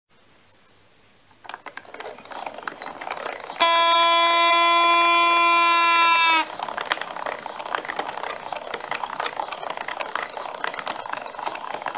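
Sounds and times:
mechanism clicking and ratcheting: 1.4s - 11.9s
loud steady held note: 3.6s - 6.5s.

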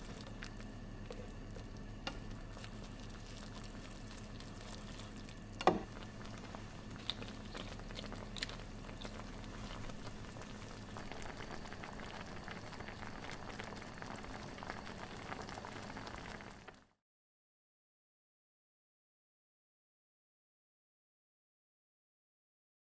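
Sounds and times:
soup bubbling in a pan: 0.0s - 17.0s.

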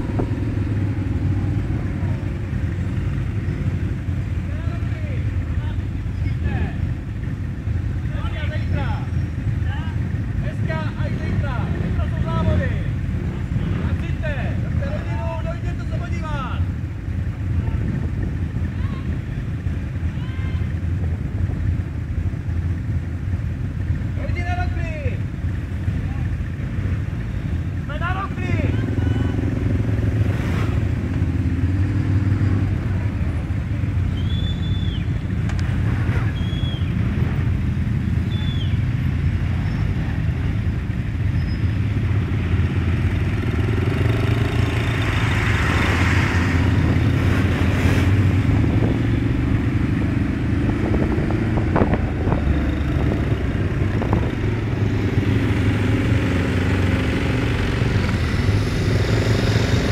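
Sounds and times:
quad bike engines droning: 0.0s - 59.9s
lorry passing: 42.5s - 59.9s.

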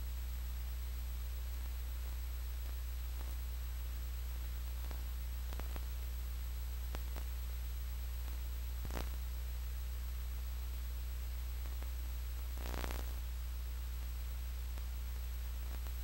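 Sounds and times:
low electrical hum with hiss: 0.0s - 16.0s
short crackle: 4.8s - 5.9s, 8.2s - 9.2s, 12.6s - 13.2s.

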